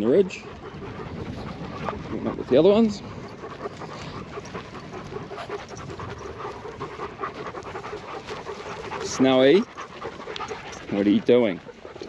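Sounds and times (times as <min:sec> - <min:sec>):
dog panting: 0:00.0 - 0:12.0.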